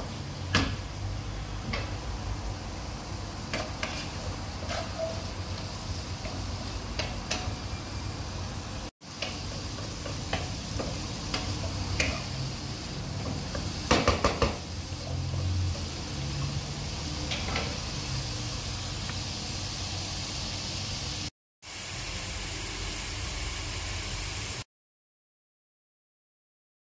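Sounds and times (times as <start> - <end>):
food sizzling in a pan: 0.1 - 24.7
wooden spatula knocking and scraping: 3.5 - 5.2, 13.2 - 15.3.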